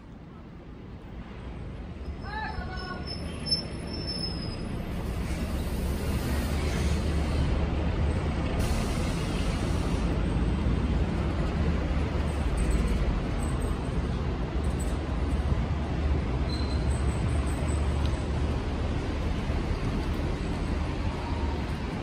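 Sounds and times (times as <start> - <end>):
heavy vehicle rumble: 0.0 - 22.0
hiss: 5.0 - 7.6, 8.5 - 10.2.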